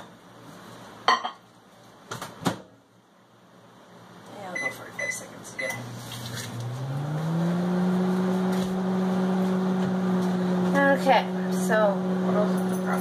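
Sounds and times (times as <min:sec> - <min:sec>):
microwave oven humming: 0:02.8 - 0:13.0.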